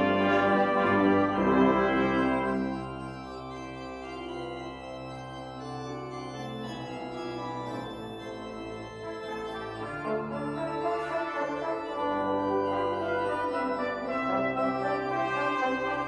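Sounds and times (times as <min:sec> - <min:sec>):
pipe organ chords: 0:00.0 - 0:16.0.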